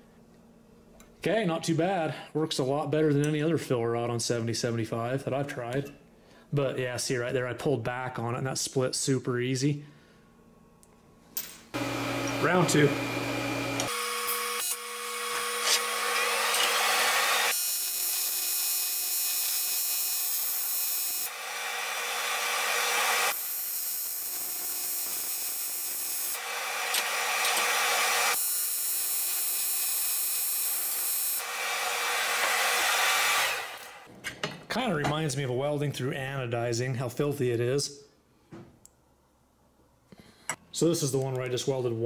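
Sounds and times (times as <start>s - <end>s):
welding arc buzzing hiss: 11.7s - 34.1s.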